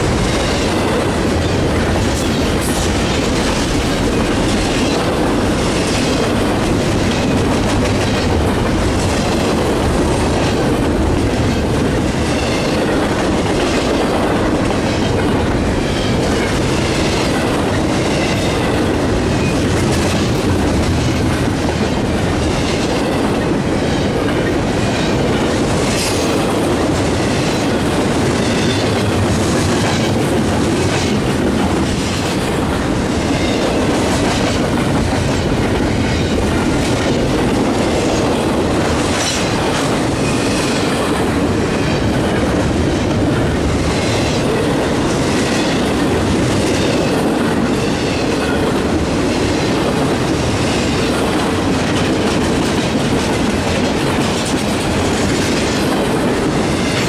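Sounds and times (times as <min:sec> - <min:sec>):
train rumbling past: 0:00.0 - 0:57.0.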